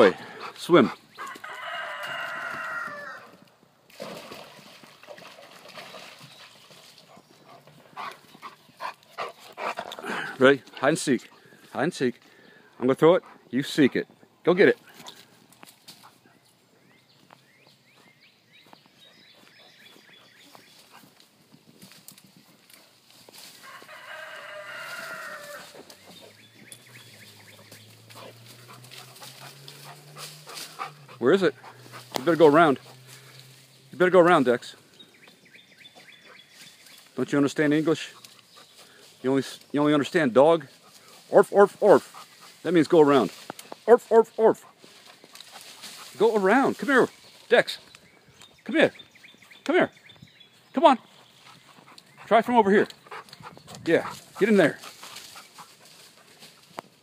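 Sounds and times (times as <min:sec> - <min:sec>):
drawn-out animal call: 0:00.0 - 0:03.4, 0:23.5 - 0:33.8
dog splashing in water: 0:03.9 - 0:07.2
water sloshing: 0:03.9 - 0:07.7
twigs snapping: 0:43.3 - 0:43.9.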